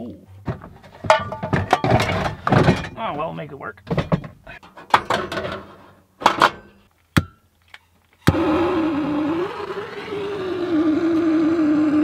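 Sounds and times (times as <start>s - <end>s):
handling clunk and click: 0.5s - 3.0s, 3.8s - 6.8s.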